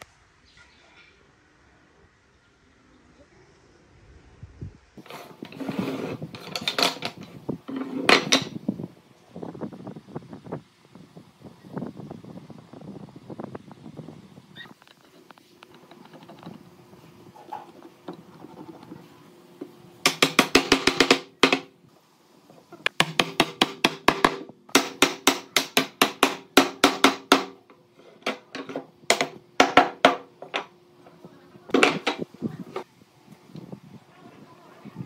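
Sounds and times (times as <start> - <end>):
rapid sharp wooden knocks: 20.0 - 21.7, 22.9 - 27.6, 29.1 - 30.7.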